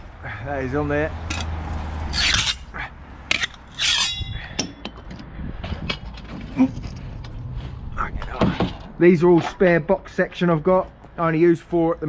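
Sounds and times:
metallic scraping rasp: 1.3s - 2.7s, 3.3s - 4.9s
tools knocking and clicking: 3.3s - 6.4s.

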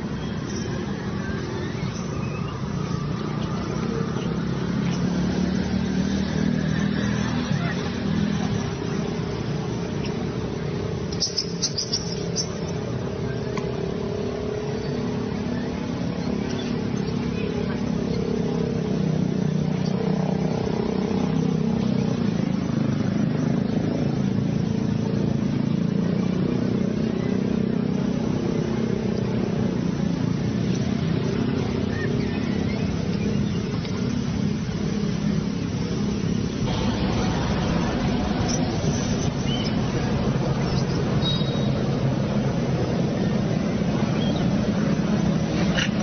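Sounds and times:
low rumbling drone: 35.9s - 45.7s.

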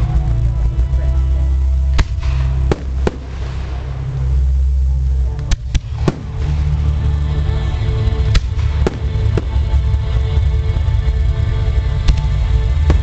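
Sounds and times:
low rumble of distant firework bursts: 0.0s - 13.0s
sharp firework bangs: 2.0s - 4.2s.

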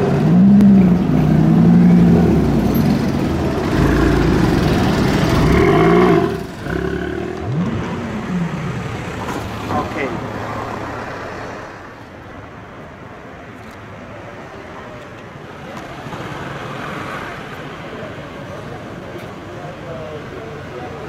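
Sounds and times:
sports car engines revving: 0.0s - 11.2s.

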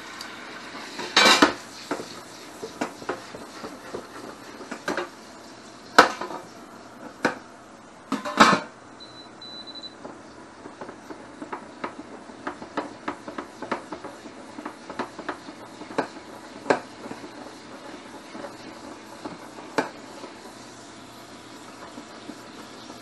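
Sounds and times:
bacon sizzling in a pan: 0.0s - 6.6s.

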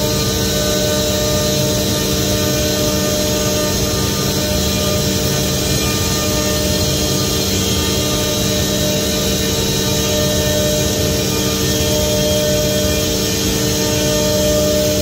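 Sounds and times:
router machine droning: 0.0s - 15.0s
whining tones: 0.0s - 15.0s.

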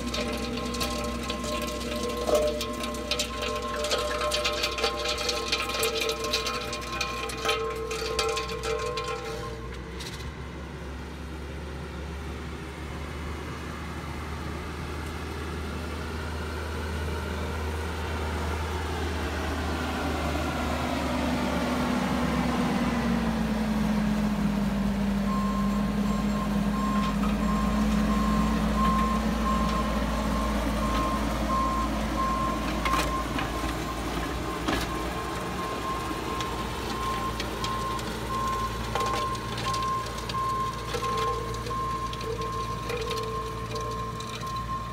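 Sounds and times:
diesel engine running: 0.0s - 44.9s
backup alarm beeping: 25.3s - 34.0s.

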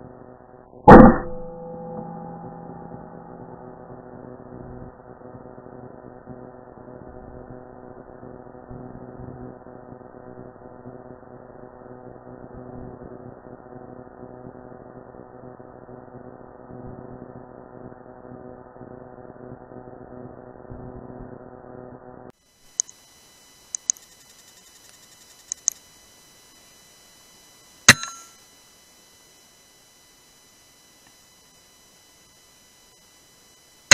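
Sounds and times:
muffled electronic hum: 0.0s - 33.9s
sharp high clicks: 22.7s - 23.0s, 23.7s - 25.8s, 27.9s - 28.3s.

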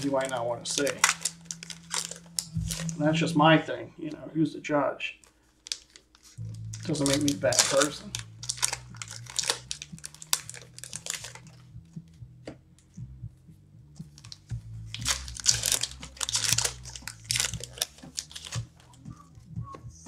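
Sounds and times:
foil wrappers crinkling and tearing: 0.0s - 3.0s, 5.2s - 11.6s, 14.2s - 19.0s.

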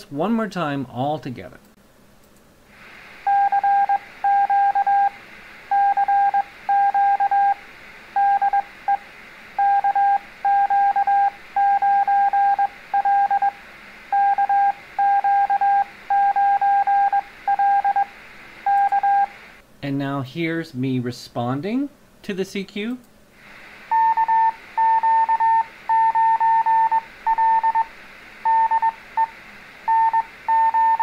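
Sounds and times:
light hiss: 1.6s - 4.3s, 22.3s - 24.9s
morse code tone: 3.3s - 7.6s, 8.2s - 9.0s, 9.6s - 18.1s, 18.7s - 19.3s, 23.9s - 29.3s, 29.9s - 31.0s.

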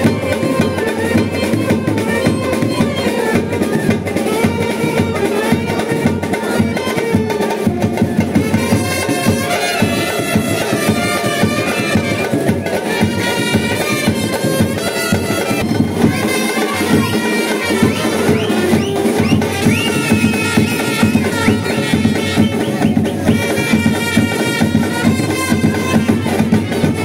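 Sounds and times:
loud dance music: 15.6s - 23.4s.

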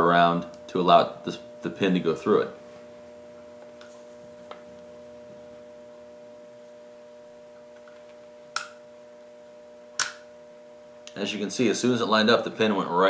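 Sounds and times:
electrical hum: 0.0s - 13.0s
sharp pistol pin click: 10.0s - 10.2s.

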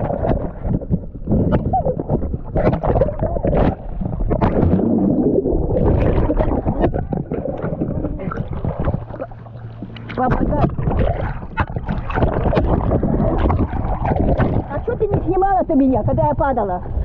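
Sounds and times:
muffled underwater bubbling: 0.0s - 17.0s.

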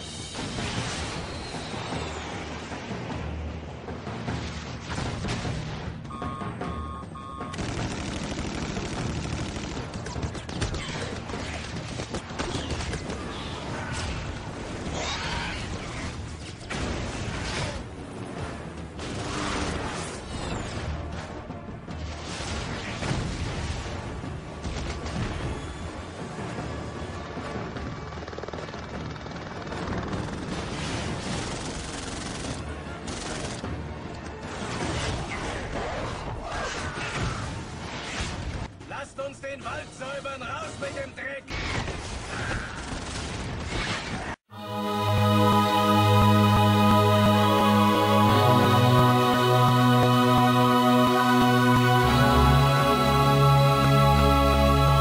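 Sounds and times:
film music: 2.2s - 10.0s, 44.5s - 55.0s
sustained gunfire: 7.5s - 12.9s.

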